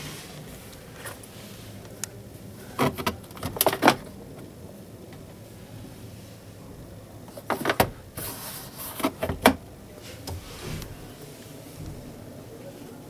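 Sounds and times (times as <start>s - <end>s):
plastic glovebox lid clacking: 7.4s - 8.0s, 9.0s - 9.6s.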